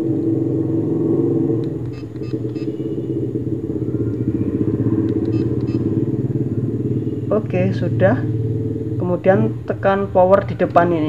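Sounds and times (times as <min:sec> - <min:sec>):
engine idling rumble: 0:00.0 - 0:11.0
faint clicks: 0:05.0 - 0:05.8.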